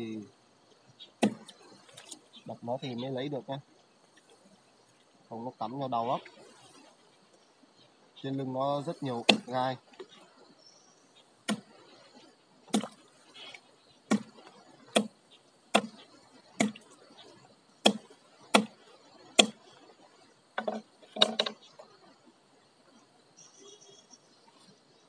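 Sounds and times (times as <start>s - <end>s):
sharp knocks striking fish: 1.2s - 1.5s, 9.2s - 9.5s, 11.4s - 11.7s, 12.7s - 13.0s, 14.1s - 16.0s, 16.6s - 16.8s, 17.8s - 18.8s, 19.4s - 19.6s.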